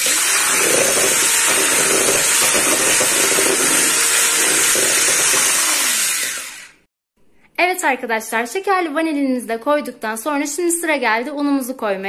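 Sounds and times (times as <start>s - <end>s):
electric hand mixer whisking batter: 0.0s - 6.9s.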